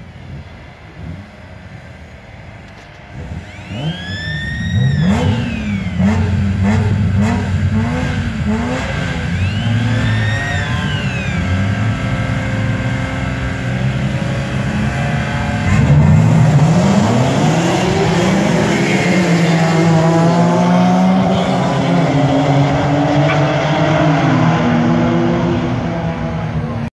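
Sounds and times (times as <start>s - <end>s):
race car engines revving: 0.0s - 26.9s
race cars accelerating: 0.0s - 26.9s.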